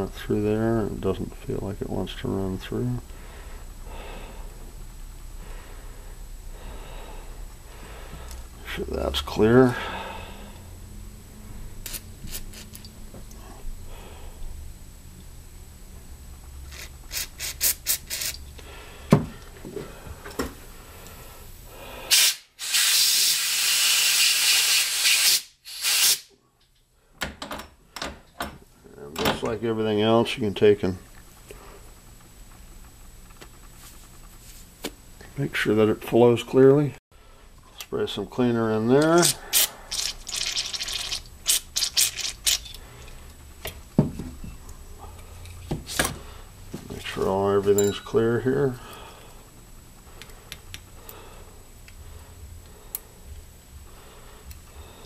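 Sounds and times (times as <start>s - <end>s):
aerosol spray bursts: 22.1s - 26.3s
loud steady spray hiss: 22.1s - 26.3s.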